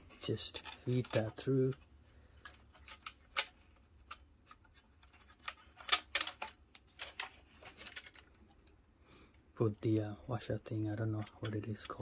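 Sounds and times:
small clicks and scrapes of connector: 0:00.4 - 0:08.8.

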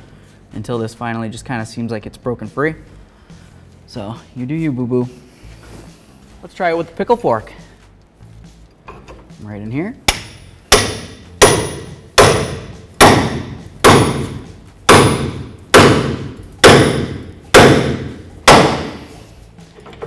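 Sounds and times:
hammer striking metal: 0:10.1 - 0:19.2.

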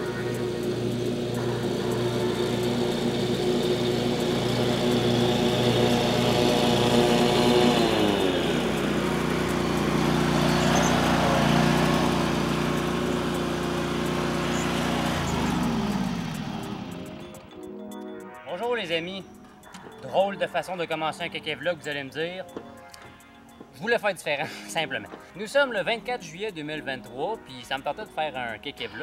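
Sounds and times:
truck engine running: 0:00.0 - 0:17.5.

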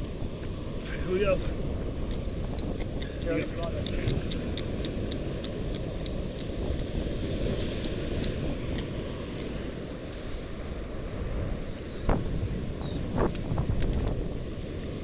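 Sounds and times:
ocean surf: 0:00.0 - 0:15.0
wind buffeting microphone: 0:00.0 - 0:15.0.

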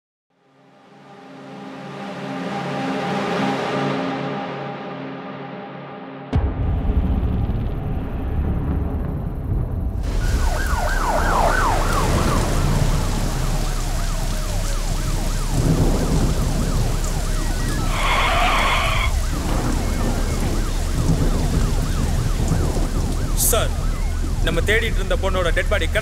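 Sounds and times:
thunder: 0:06.3 - 0:26.0
rain falling: 0:07.4 - 0:26.0
police siren wailing: 0:10.0 - 0:26.0.

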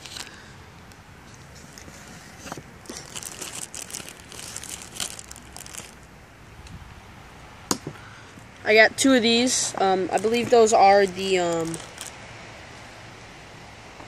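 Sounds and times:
plastic bag crinkling: 0:00.0 - 0:00.3, 0:02.8 - 0:06.0, 0:10.1 - 0:12.2.

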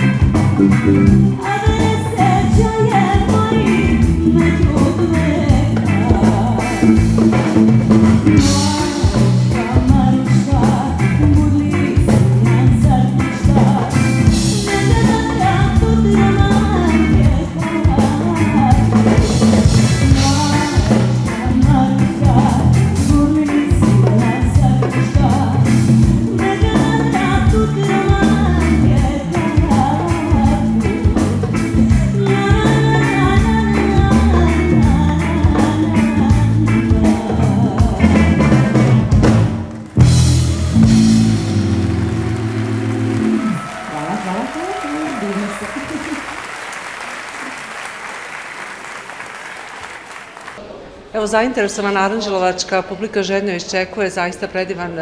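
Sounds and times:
electric bass guitar: 0:00.0 - 0:44.8
drum kit beat: 0:00.0 - 0:46.4
woman singing into microphone: 0:00.9 - 0:07.4, 0:08.3 - 0:38.5.

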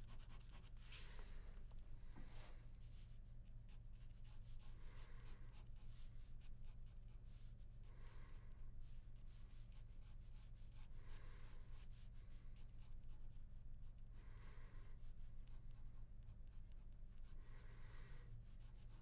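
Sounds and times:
pen scratching on paper: 0:00.0 - 0:01.2, 0:02.9 - 0:07.5
low steady hum: 0:00.0 - 0:19.0.

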